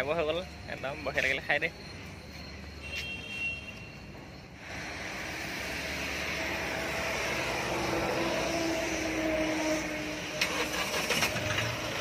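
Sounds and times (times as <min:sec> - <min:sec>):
vehicle engine noise: 0:04.1 - 0:12.0
tyres hissing on wet road: 0:04.6 - 0:11.6.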